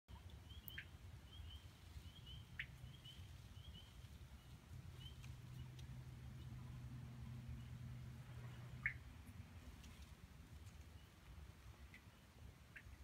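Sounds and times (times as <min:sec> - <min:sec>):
distant frogs peeping: 0:00.1 - 0:09.5, 0:11.8 - 0:13.0
low rumble: 0:02.8 - 0:10.7.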